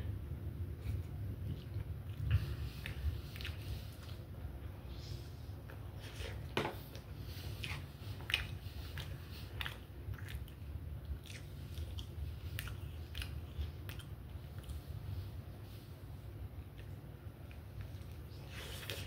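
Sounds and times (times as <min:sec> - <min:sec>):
person chewing food: 0:00.7 - 0:15.8.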